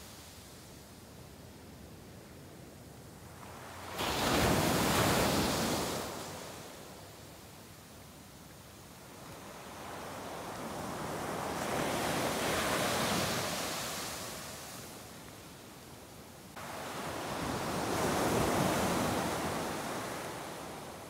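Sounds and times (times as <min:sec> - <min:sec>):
ocean surf breaking on beach: 0:03.4 - 0:06.9, 0:09.1 - 0:15.2, 0:16.5 - 0:21.0.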